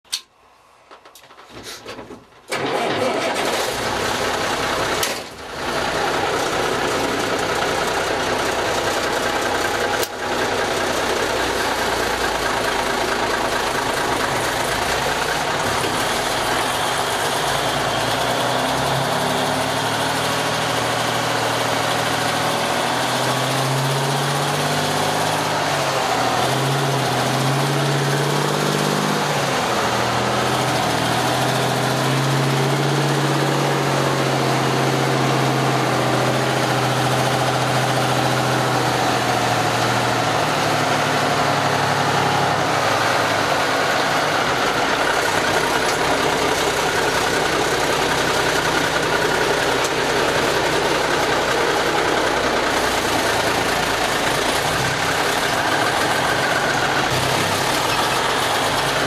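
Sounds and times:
diesel truck engine running: 0.4s - 59.0s.

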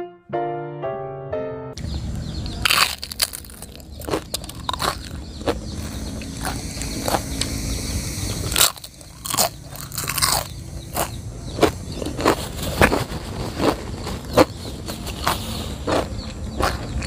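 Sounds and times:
crunching chips being chewed: 2.6s - 7.6s, 8.4s - 17.0s.

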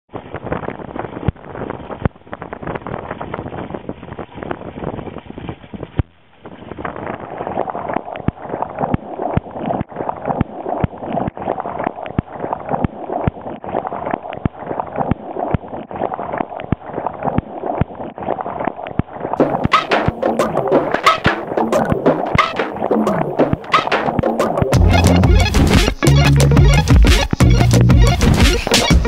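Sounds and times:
crackle of small pops and splashes: 0.1s - 19.4s
seawater churning and gurgling: 0.1s - 29.0s
music: 19.4s - 29.0s.

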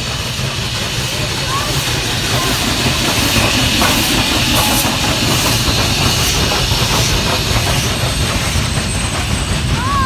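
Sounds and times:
locomotive wheels rumbling on rails: 0.0s - 10.0s
steam hissing: 0.0s - 10.0s.

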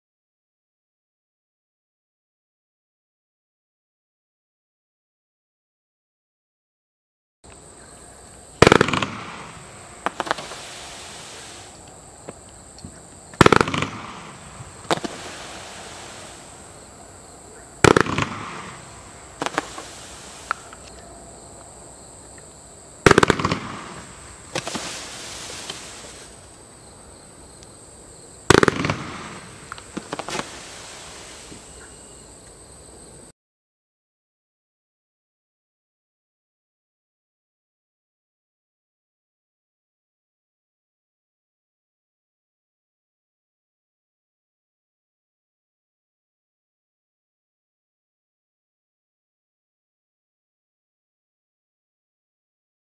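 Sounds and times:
fireworks loud reports: 8.1s - 21.0s, 23.0s - 26.7s, 28.4s - 32.2s
fireworks small pops: 8.6s - 16.9s, 17.7s - 21.0s, 21.6s - 26.7s, 28.5s - 32.6s.

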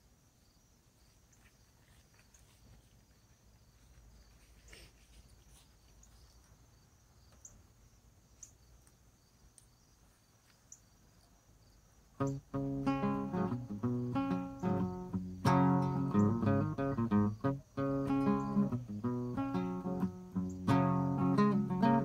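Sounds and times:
soft rustle: 0.8s - 11.4s.

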